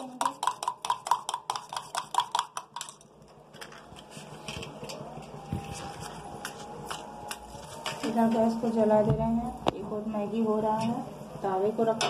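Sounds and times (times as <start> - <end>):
metal spoon beating eggs clinking: 0.0 - 3.8.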